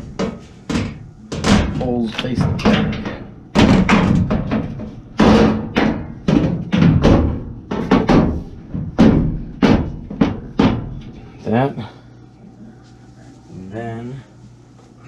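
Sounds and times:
sharp knocks and bangs on panel: 0.0 - 11.2.

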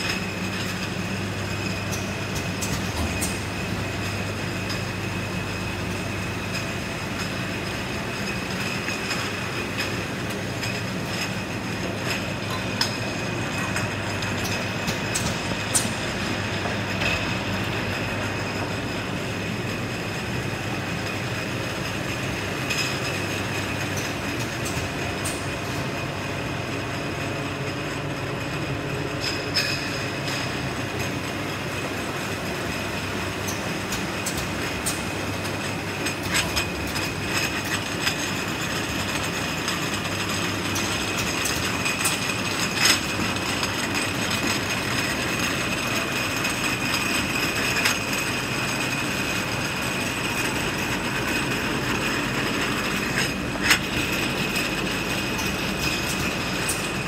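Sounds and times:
conveyor motor humming: 0.0 - 57.0.

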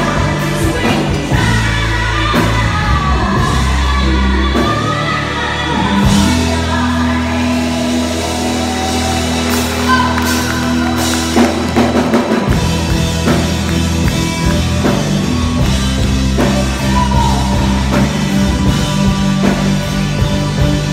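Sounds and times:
rock band chords over bass: 0.0 - 20.9
drum kit steady beat: 8.7 - 20.9.

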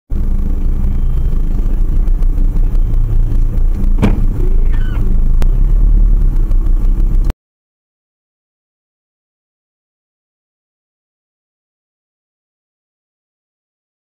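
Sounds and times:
bus engine running: 0.1 - 7.4
sharp knock: 4.0 - 4.4
brief falling squeal: 4.6 - 5.0.

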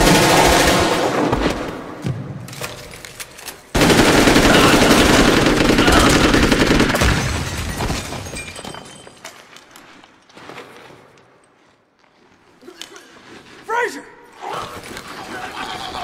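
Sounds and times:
automatic rifles firing: 0.0 - 1.9, 3.7 - 7.2.

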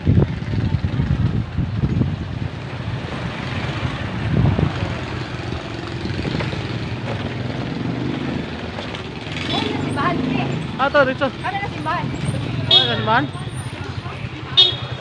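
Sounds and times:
wind rushing over microphone: 0.0 - 8.5
motorcycle engine drone: 0.0 - 15.0.

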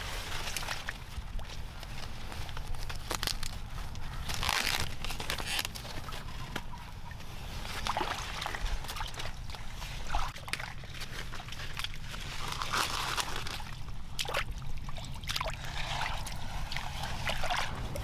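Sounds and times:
corn plants rustling: 0.0 - 14.2
feet sloshing through muddy water: 6.0 - 18.0.

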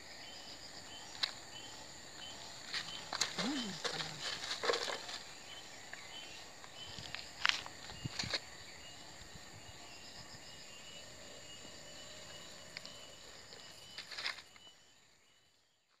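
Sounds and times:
insects buzzing: 0.0 - 16.0.

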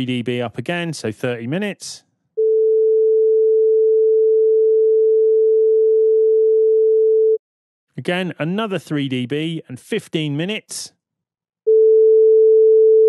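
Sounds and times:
sine wave test tone: 2.4 - 7.4, 11.7 - 13.0.

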